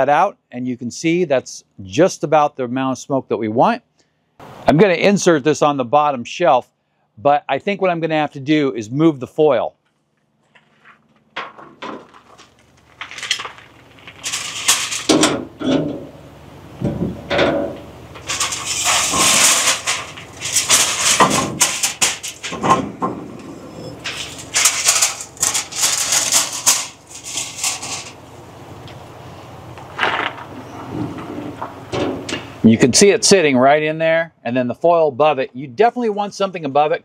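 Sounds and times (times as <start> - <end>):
aluminium foil crinkling: 10.7 - 15.2, 18.1 - 22.6, 23.9 - 28.2
metal racks and tray clattering: 11.4 - 16.2, 16.8 - 28.3, 29.9 - 32.7.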